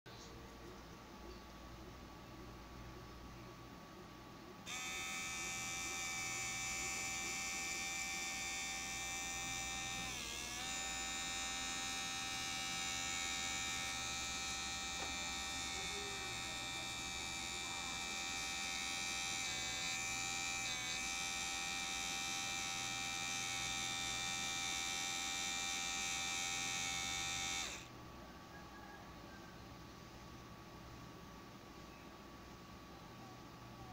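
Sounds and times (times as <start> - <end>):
small motor whining: 4.7 - 27.9.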